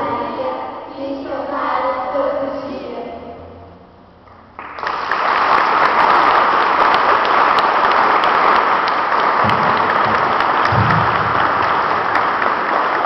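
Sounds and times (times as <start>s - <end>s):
audience applauding: 4.5s - 13.0s.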